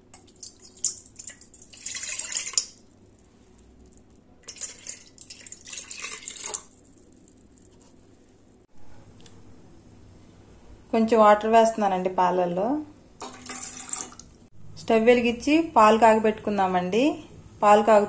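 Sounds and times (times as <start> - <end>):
milk pouring into a steel bowl: 0.1 - 7.8, 13.2 - 14.2.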